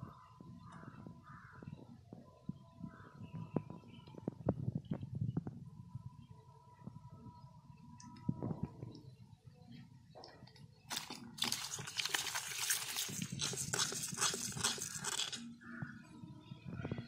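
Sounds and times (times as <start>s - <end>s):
fish slapping in a steel bowl: 10.9s - 15.4s.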